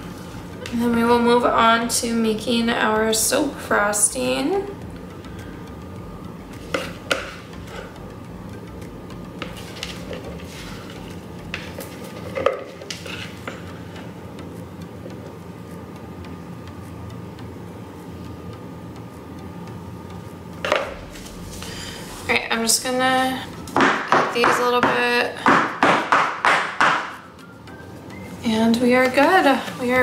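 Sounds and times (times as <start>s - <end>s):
low room hum: 0.0s - 30.0s
spatula scraping a mixing bowl: 9.4s - 13.7s.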